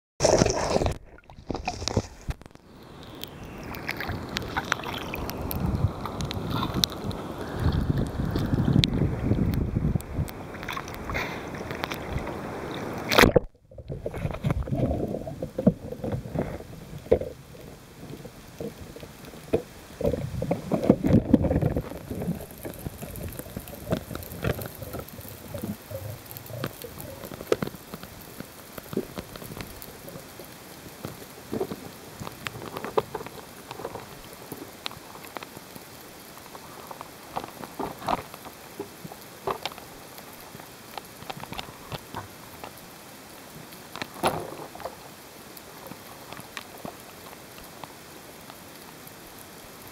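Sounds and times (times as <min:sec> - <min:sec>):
splash: 0:00.2 - 0:02.5, 0:03.2 - 0:08.5, 0:10.5 - 0:16.6
clicks and crackles: 0:00.2 - 0:49.9
underwater sloshing and bubbling: 0:00.2 - 0:49.9
water and wind rushing: 0:00.2 - 0:49.9.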